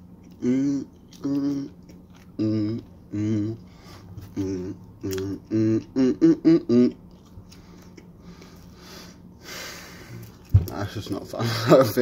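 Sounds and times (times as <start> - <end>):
chewing and mouth noises: 0.1 - 5.9
man humming: 0.3 - 7.0.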